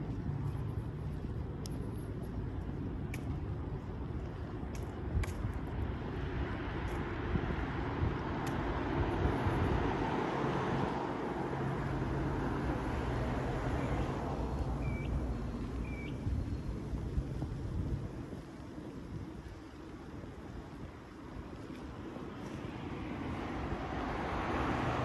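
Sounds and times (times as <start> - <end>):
vehicle passing with rumble: 22.8 - 25.0.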